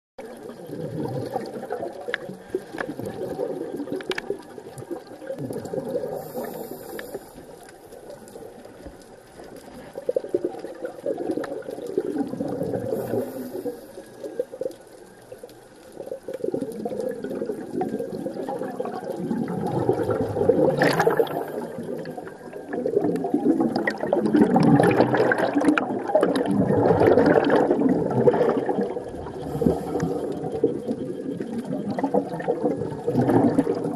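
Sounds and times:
underwater bubbling rush: 0.2 - 33.9
faint clicks: 1.2 - 26.6.

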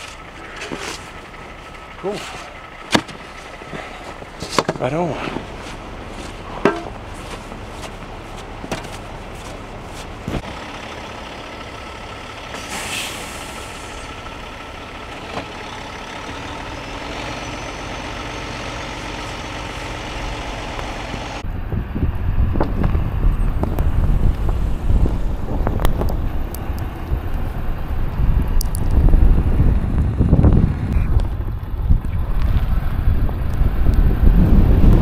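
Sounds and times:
diesel engine running: 0.0 - 35.0
air hiss: 12.6 - 14.0
wind buffeting microphone: 19.9 - 35.0.

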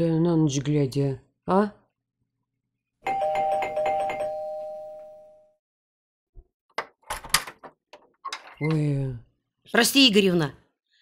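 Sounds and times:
two-tone electric doorbell ringing: 3.0 - 5.6.

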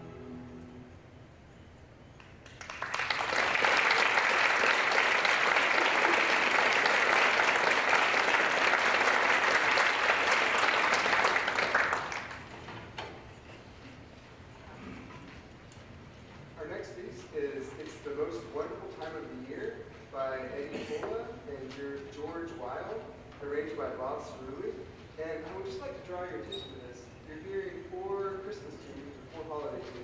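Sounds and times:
audience applause: 2.2 - 12.6.

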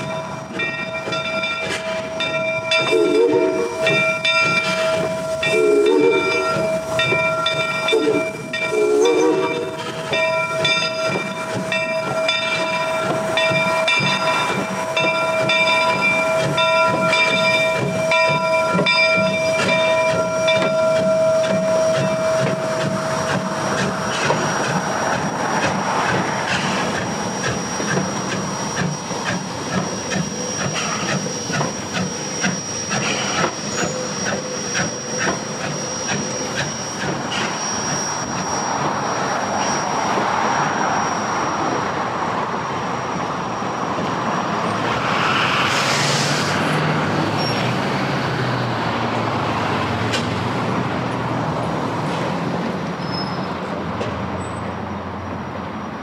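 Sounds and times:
train wheels clicking on rail: 0.0 - 40.7, 44.0 - 55.7
steam hiss: 0.0 - 41.9, 44.5 - 48.4.

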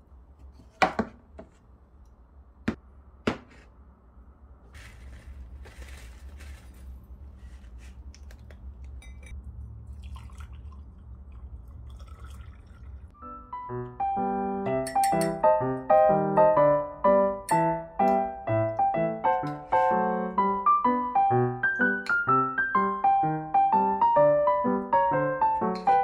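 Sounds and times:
handling and rustling: 4.7 - 9.3.

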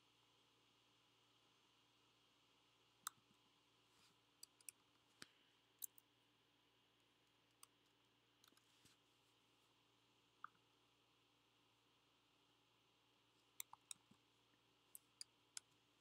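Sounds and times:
background hiss: 0.0 - 16.0
keyboard and mouse clicks: 4.4 - 4.8, 13.6 - 14.1.

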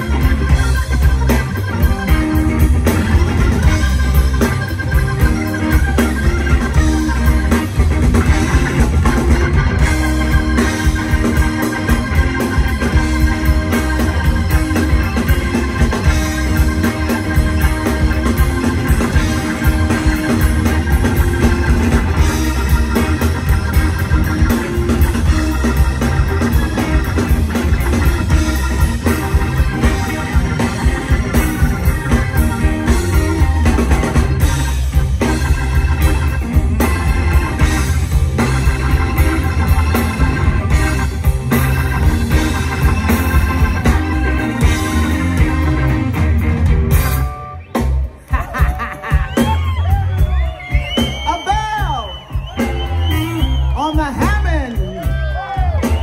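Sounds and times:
bass: 0.0 - 56.0
drums: 0.0 - 56.0
electric guitar: 0.0 - 56.0
organ: 0.0 - 56.0.

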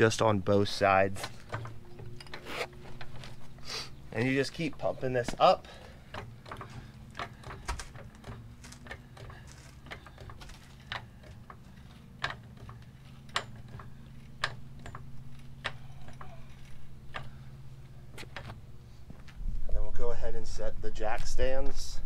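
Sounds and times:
steady low hum: 0.0 - 22.0
floor jack pumping clicks: 6.0 - 17.4.

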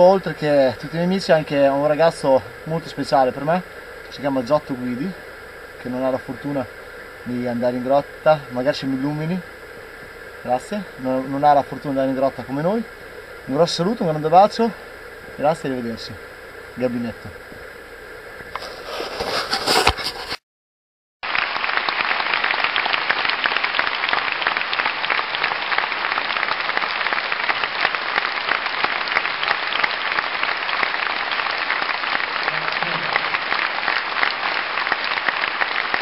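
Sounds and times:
crowd applauding: 21.2 - 36.0.

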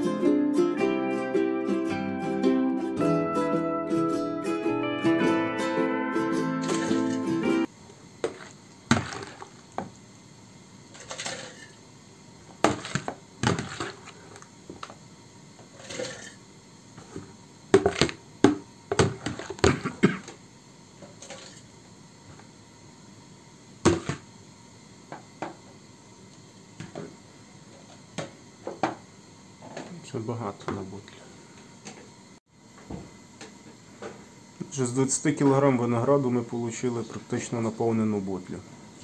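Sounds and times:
plastic bowl knocks and scrapes: 8.2 - 9.4, 12.6 - 14.0, 17.2 - 19.7, 23.9 - 24.2.

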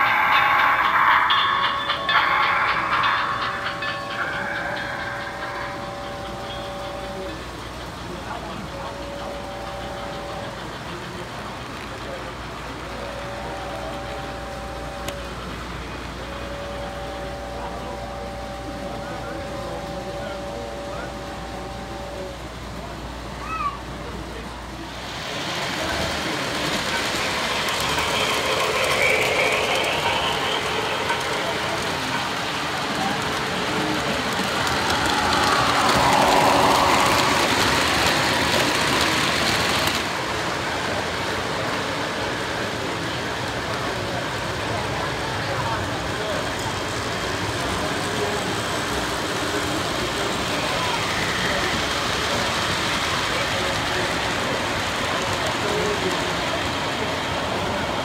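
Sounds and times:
faint voices murmuring: 0.0 - 58.0
model train rumbling on rails: 0.0 - 58.0
model train wheels rattling: 25.2 - 40.3.

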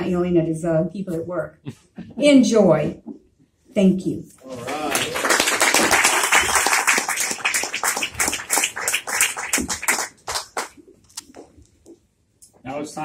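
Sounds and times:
audience applauding: 4.5 - 10.8.

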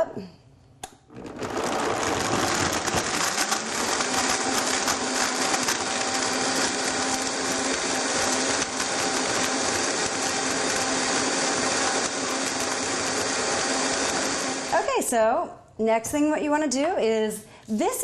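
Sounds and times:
blender whirring: 1.1 - 15.0.

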